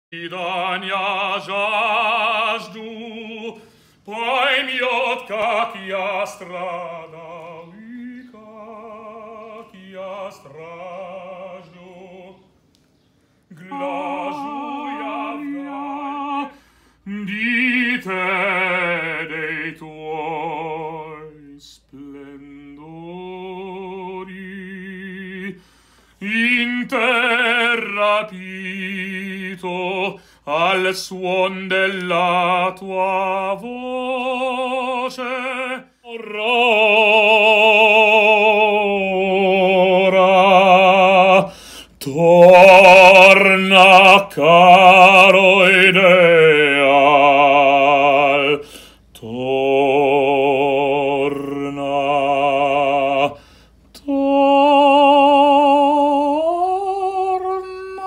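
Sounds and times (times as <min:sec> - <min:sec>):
operatic tenor singing: 0:00.1 - 0:12.4, 0:13.5 - 0:25.6, 0:26.2 - 0:58.0.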